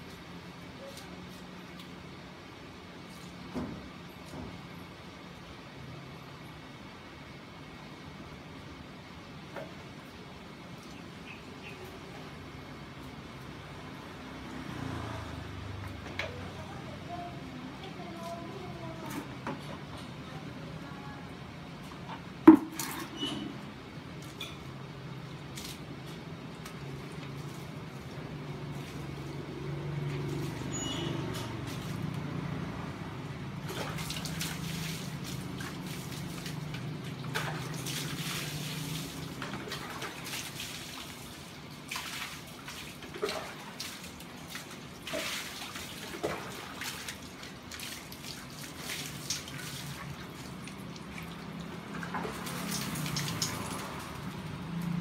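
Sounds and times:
water splashing on tiled floor: 0:22.4 - 0:23.4, 0:24.1 - 0:55.0.

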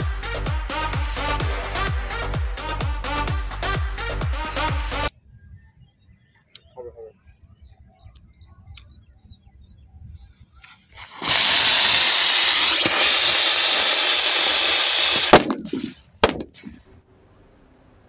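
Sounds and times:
firework rocket motor hissing: 0:00.0 - 0:03.8, 0:10.7 - 0:18.0
sharp firework cracks: 0:11.0 - 0:16.8.

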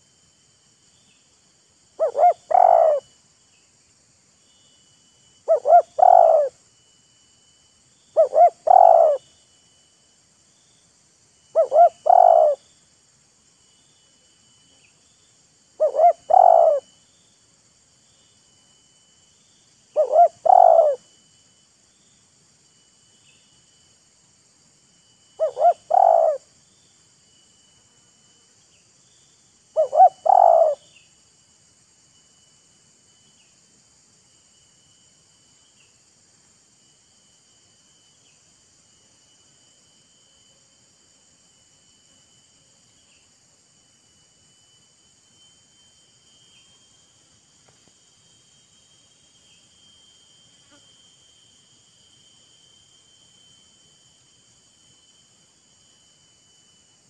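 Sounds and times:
faint insect buzz: 0:00.0 - 0:57.0
dove cooing: 0:02.0 - 0:03.1, 0:05.5 - 0:06.5, 0:08.2 - 0:09.2, 0:11.6 - 0:12.6, 0:15.8 - 0:16.9, 0:20.0 - 0:21.0, 0:25.4 - 0:26.4, 0:29.8 - 0:30.8.

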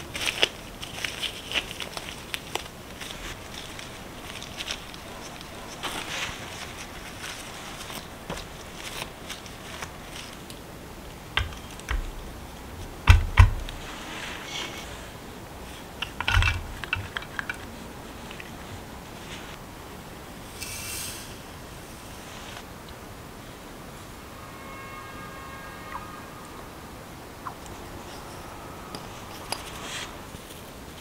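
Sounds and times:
sugar pouring hiss: 0:20.4 - 0:22.7.

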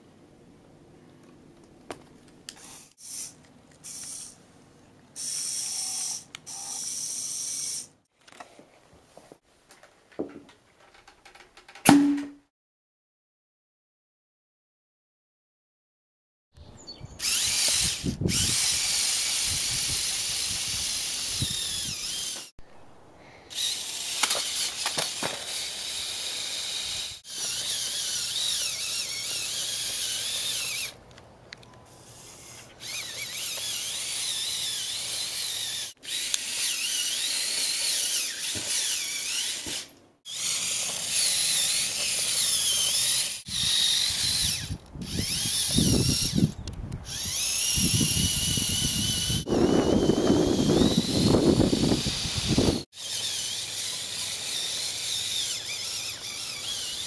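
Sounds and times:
toy motors whining: 0:02.5 - 0:04.4, 0:05.2 - 0:08.0, 0:17.2 - 0:22.5, 0:23.5 - 0:31.0, 0:31.6 - 0:57.0.

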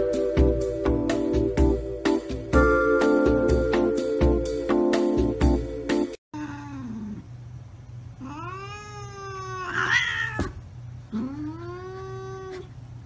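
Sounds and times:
cat yowling: 0:08.2 - 0:12.8.

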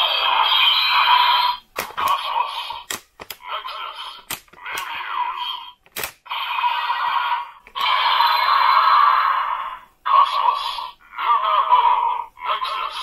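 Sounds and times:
plastic clicks: 0:02.8 - 0:03.4, 0:04.2 - 0:04.9, 0:05.8 - 0:06.2.

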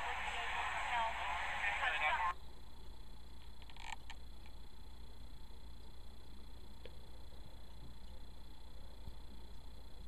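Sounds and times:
even hiss: 0:00.0 - 0:02.4
faint high-pitched whine: 0:00.0 - 0:10.0
low hum: 0:00.0 - 0:10.0.

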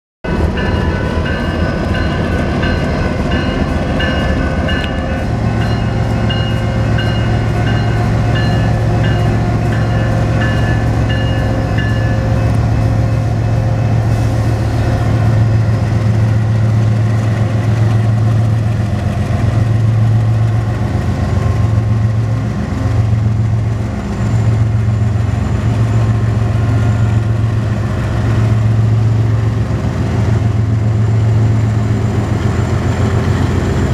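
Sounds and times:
crossing bell ringing: 0:00.2 - 0:14.1
diesel locomotive engines humming: 0:00.2 - 0:33.9.

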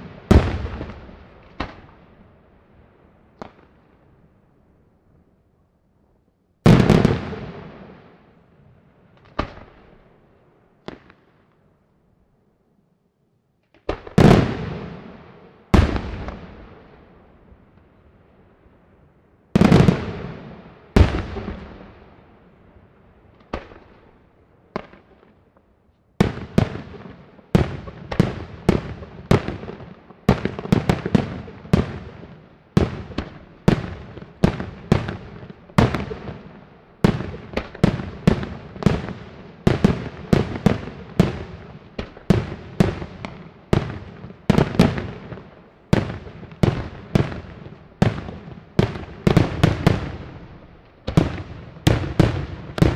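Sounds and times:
fireworks bursting: 0:00.0 - 0:02.2, 0:06.6 - 0:08.3, 0:09.1 - 0:10.1, 0:10.8 - 0:11.5, 0:13.7 - 0:17.4, 0:19.5 - 0:22.2, 0:23.3 - 0:52.9.

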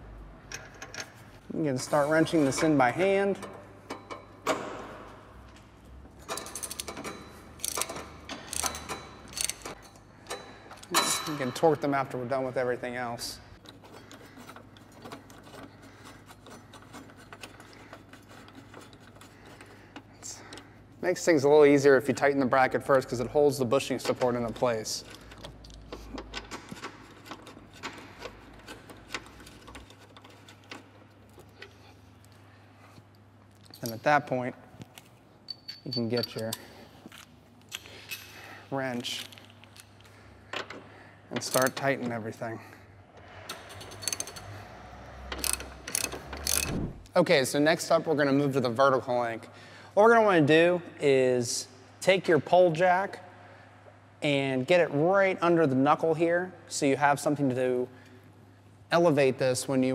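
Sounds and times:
hand ratchet clicking: 0:06.3 - 0:11.0, 0:43.5 - 0:44.6, 0:45.2 - 0:46.9.

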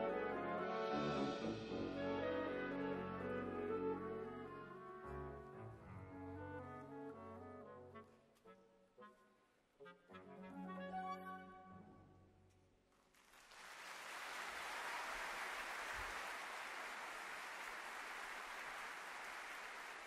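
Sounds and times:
audience applause: 0:13.2 - 0:20.0.

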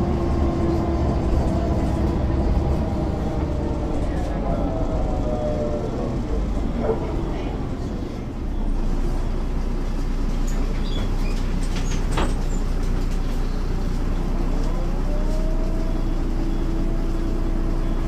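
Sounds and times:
bus diesel engine rumbling: 0:00.0 - 0:18.0.

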